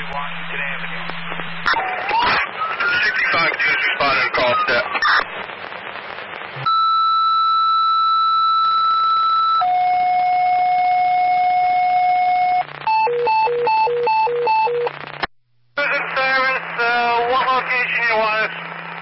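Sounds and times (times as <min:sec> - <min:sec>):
radio hiss: 0:00.0 - 0:06.7, 0:14.9 - 0:19.0
two-tone radio page: 0:00.0 - 0:07.0, 0:08.6 - 0:19.0.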